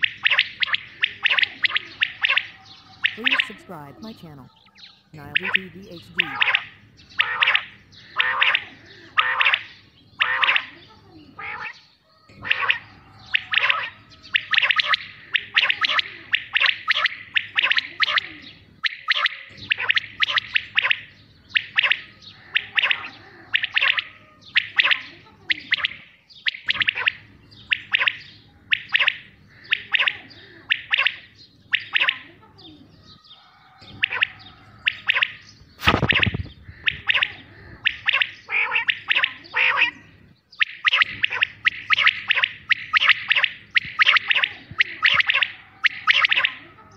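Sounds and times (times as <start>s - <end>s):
quail calling: 0.0s - 46.9s
short burst of noise: 35.8s - 36.5s.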